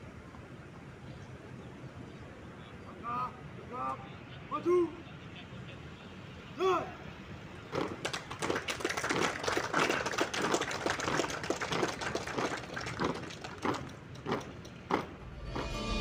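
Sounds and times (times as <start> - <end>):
marching boots on brick paving: 12.4 - 15.8
music: 15.3 - 16.0.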